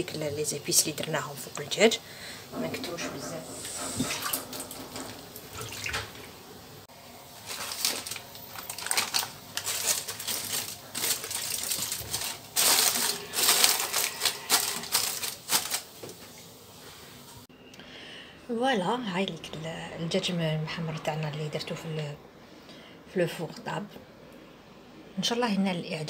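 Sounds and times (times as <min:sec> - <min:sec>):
aluminium foil crinkling: 0:07.2 - 0:16.4
parchment paper crinkling: 0:07.3 - 0:16.2.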